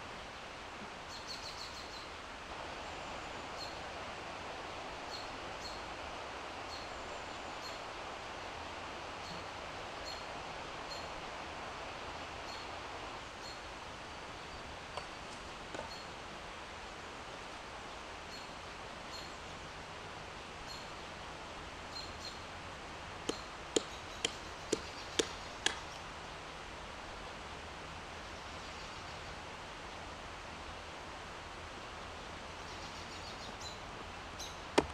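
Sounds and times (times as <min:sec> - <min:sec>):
steady rushing hiss: 0:00.0 - 0:34.9
wood struck on chopping stump: 0:23.3 - 0:25.8.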